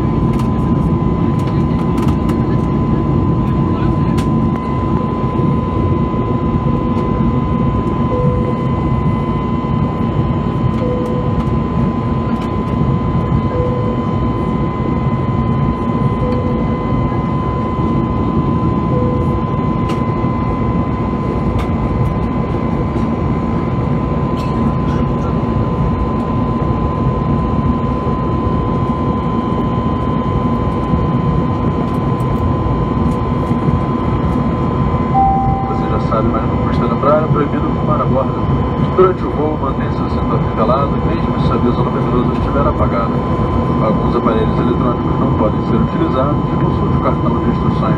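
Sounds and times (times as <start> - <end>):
aircraft cabin engine rush: 0.0 - 47.9
steady high tone: 8.0 - 9.8, 10.7 - 12.3, 13.4 - 15.3, 16.0 - 18.2, 18.8 - 21.0, 35.1 - 37.2.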